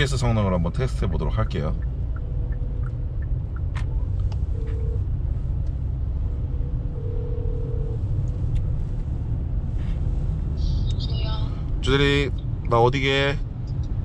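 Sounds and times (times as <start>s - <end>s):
road rumble inside a car: 0.0s - 14.0s
phone ringback tone: 4.5s - 5.0s, 7.0s - 8.0s.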